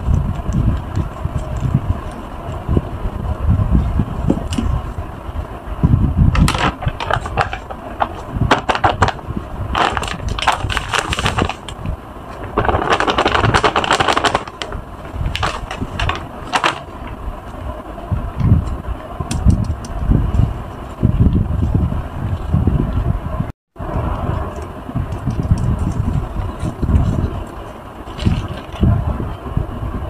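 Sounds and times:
plastic bag crinkling: 9.8 - 17.1.

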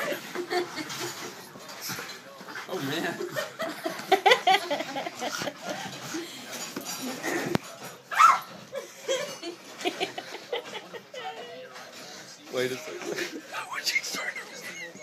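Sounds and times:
small dog yipping and whining: 8.1 - 8.6.

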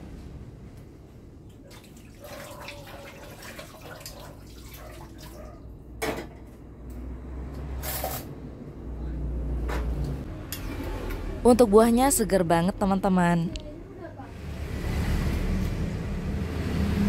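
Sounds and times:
water splashing in a sink: 1.5 - 5.7.

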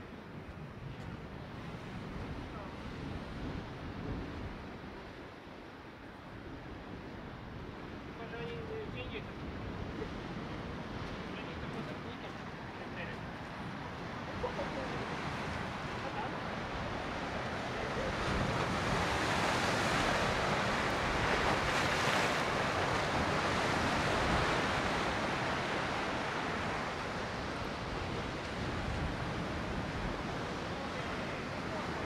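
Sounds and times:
surf washing against breakwater: 0.0 - 32.0.

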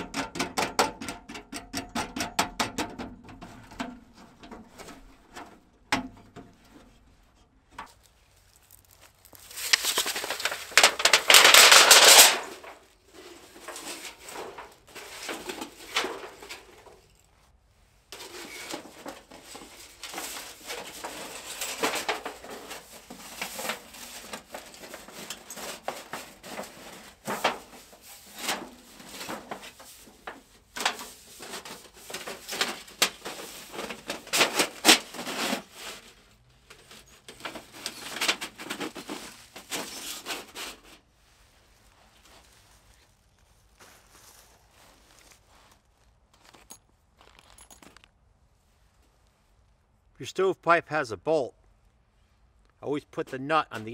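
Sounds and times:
metal sheet sliding and rustling: 3.4 - 8.1, 8.7 - 43.2.

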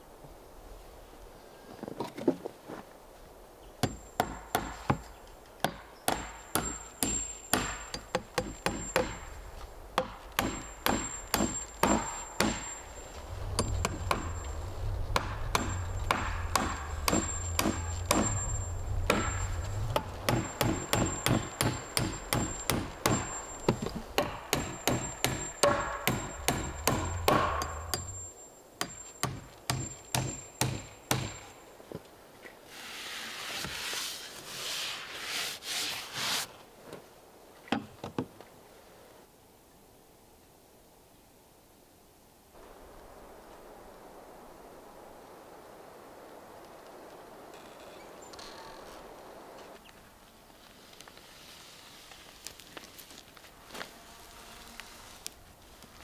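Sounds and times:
hammer nailing wooden boards: 3.8 - 9.3, 10.0 - 12.7, 15.2 - 18.4, 20.3 - 28.2, 28.8 - 31.5.

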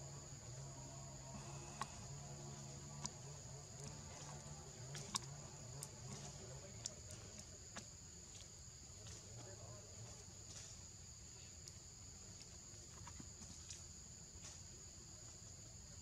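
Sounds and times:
high-pitched insect drone: 0.0 - 6.6.

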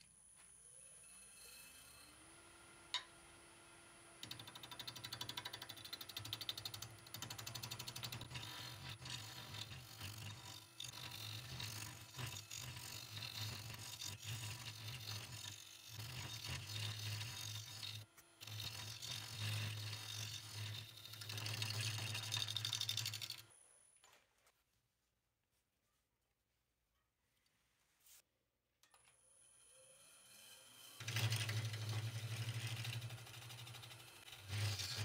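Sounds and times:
lathe tool rattling ticks: 4.2 - 8.7
lathe low hum: 29.4 - 35.0.

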